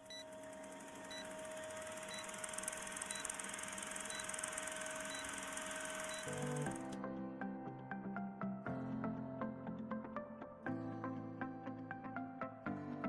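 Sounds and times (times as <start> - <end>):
film projector rattle and hum: 0.0 - 7.0
short high beeps: 4.0 - 6.6.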